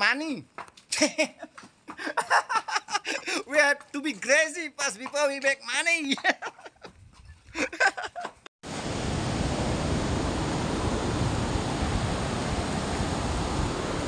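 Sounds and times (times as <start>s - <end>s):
wind: 0.0s - 14.0s
man laughing: 0.9s - 3.6s, 6.0s - 8.5s
beach surf: 8.6s - 14.0s.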